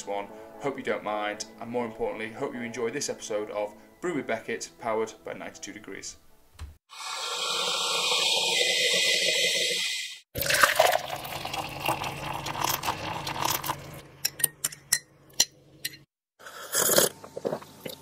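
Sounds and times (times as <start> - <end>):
liquid poured into a mug: 10.4 - 14.0.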